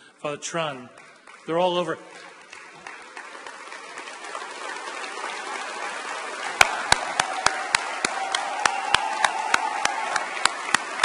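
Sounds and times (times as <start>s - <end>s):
audience applause: 1.0s - 11.0s
sharp hand claps close: 6.6s - 11.0s.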